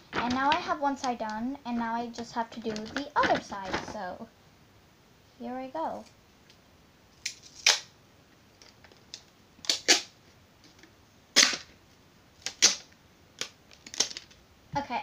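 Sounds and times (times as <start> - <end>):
packing tape ripping off roll: 7.2 - 7.9, 8.9 - 10.2, 11.3 - 11.7, 12.4 - 14.4.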